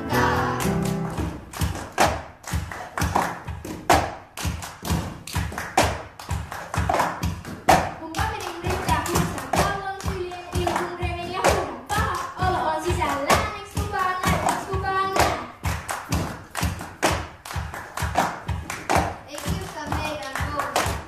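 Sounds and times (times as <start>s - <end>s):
people singing: 0.0s - 1.2s
hand claps: 0.6s - 21.0s
plastic cups thumped on wooden floor: 16.0s - 19.7s.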